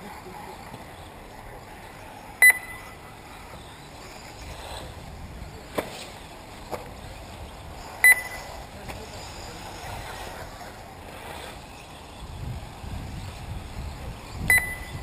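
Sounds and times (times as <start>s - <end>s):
faint steady background noise: 0.0s - 15.0s
short high electronic beep: 2.4s - 2.9s, 8.0s - 8.4s.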